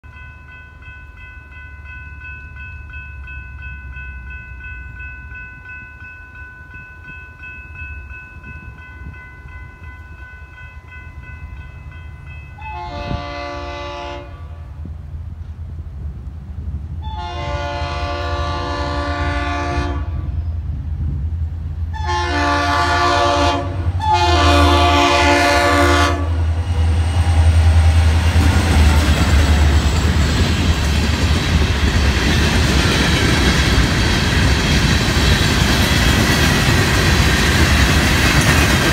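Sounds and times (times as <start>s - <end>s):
low locomotive engine rumble: 0.2s - 38.9s
locomotive horn blasts: 12.6s - 14.8s, 17.0s - 20.4s, 21.9s - 26.8s.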